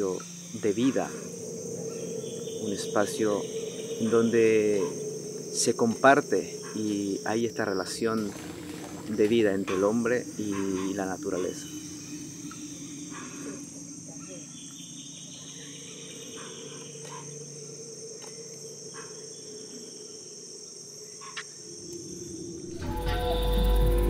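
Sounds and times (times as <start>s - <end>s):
insect chorus: 0.0s - 24.0s
music with sustained tones: 21.8s - 24.0s.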